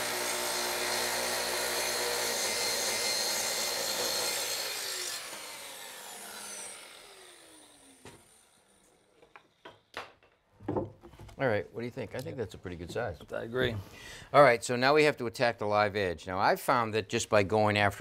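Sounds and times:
circular saw cutting wood: 0.0s - 9.6s.

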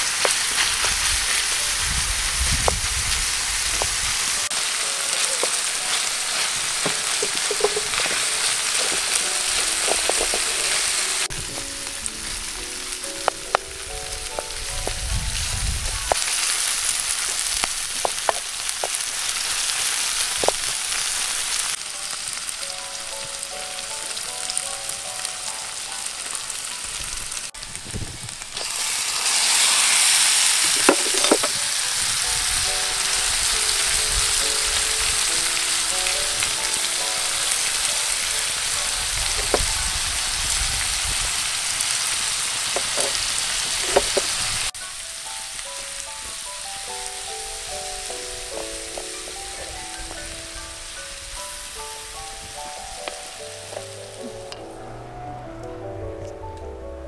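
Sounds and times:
vegetables sizzling in frying pan: 0.0s - 54.6s
spoon tapping and scraping pan: 6.3s - 11.2s, 30.6s - 31.6s, 42.8s - 43.2s, 43.8s - 44.3s.

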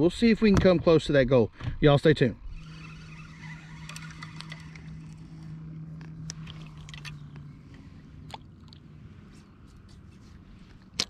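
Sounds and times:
steady low hum: 1.5s - 11.0s
fishing reel clicks: 2.6s - 8.4s.

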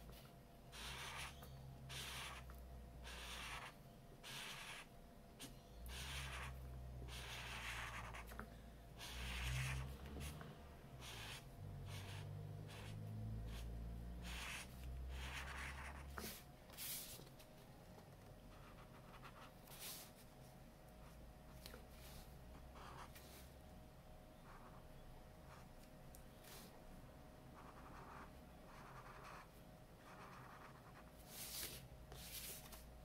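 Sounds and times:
marker scratching on paper: 0.7s - 8.4s, 9.0s - 10.4s, 11.0s - 17.3s, 18.5s - 20.2s, 21.6s - 23.5s, 24.4s - 24.8s, 27.6s - 32.8s.

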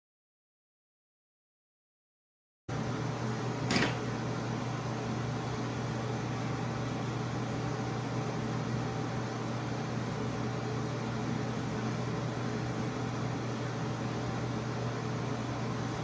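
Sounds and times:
fan humming and hissing: 2.7s - 16.0s.

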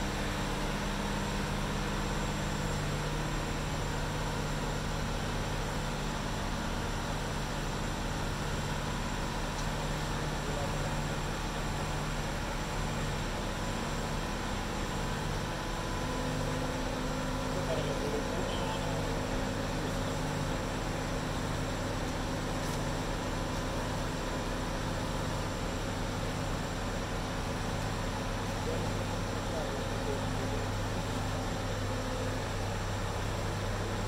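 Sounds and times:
crane engine humming: 9.2s - 34.0s.

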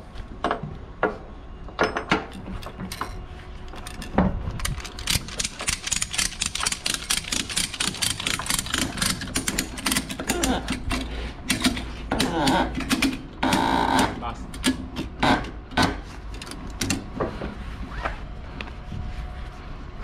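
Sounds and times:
ratchet strap pawl clicking: 4.6s - 11.9s.

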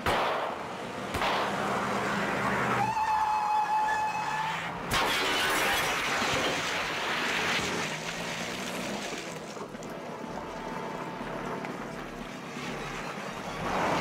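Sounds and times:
high tire squeal: 2.3s - 6.0s
breaking glass: 4.9s - 8.0s
car crash: 4.9s - 9.4s.

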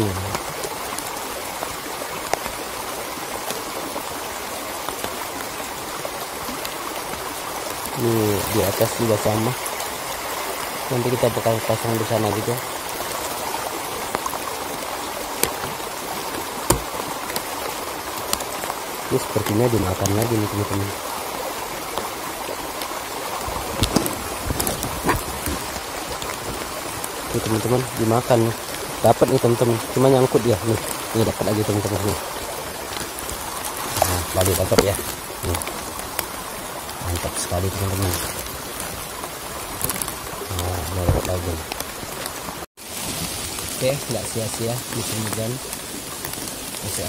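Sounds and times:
raindrops ticking: 0.0s - 42.7s
small stream running: 0.0s - 47.0s
dull knocks: 16.7s - 17.1s, 23.4s - 25.8s.

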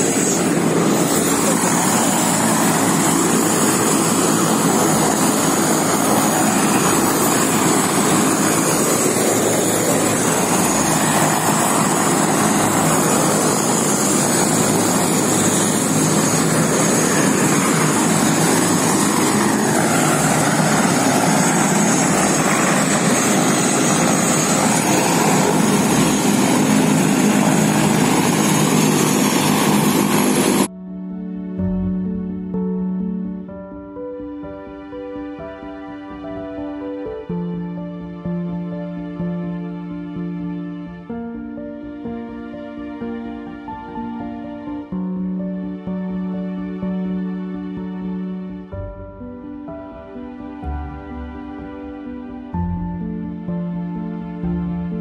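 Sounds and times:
helicopter rotor and engine: 0.0s - 30.7s
high turbine whine: 0.0s - 55.0s.

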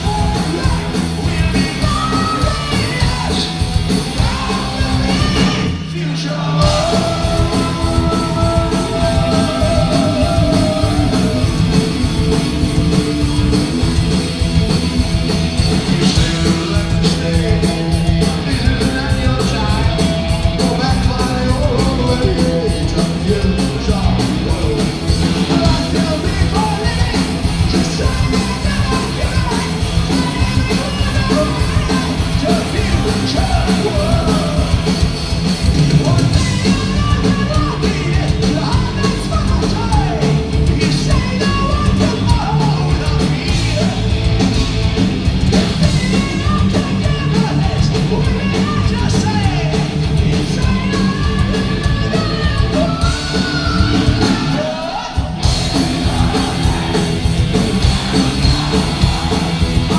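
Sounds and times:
man singing: 0.0s - 11.8s, 15.8s - 35.0s, 35.8s - 44.2s, 45.5s - 59.9s
high yelled vocals: 0.0s - 12.0s, 25.4s - 35.0s, 45.5s - 59.9s
heavy metal band playing: 0.0s - 59.9s.

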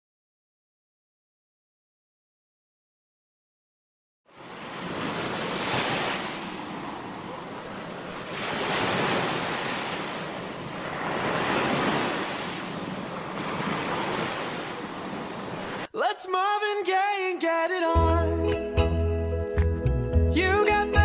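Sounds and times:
waves washing onto beach: 4.3s - 15.9s.

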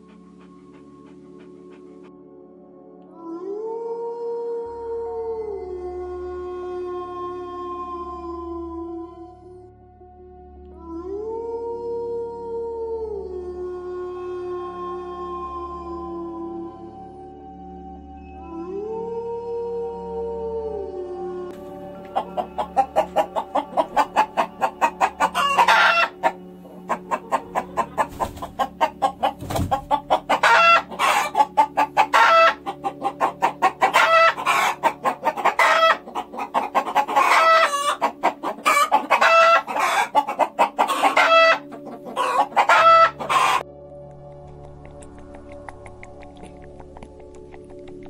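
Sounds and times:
hens clucking and cackling: 21.6s - 43.6s.

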